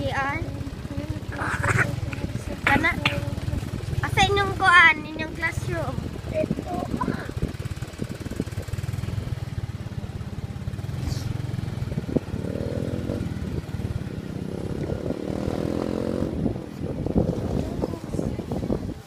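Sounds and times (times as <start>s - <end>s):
motorcycle engine rumbling: 0.0s - 19.0s.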